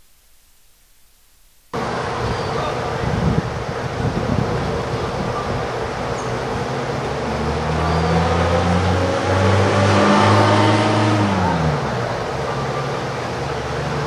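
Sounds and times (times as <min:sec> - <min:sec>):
vehicle driving past: 0:06.3 - 0:14.0.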